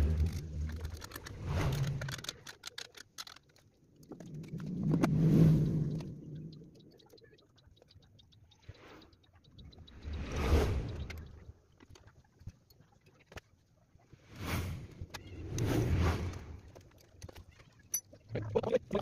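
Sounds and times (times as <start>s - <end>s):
low rumble: 4.2s - 6.8s.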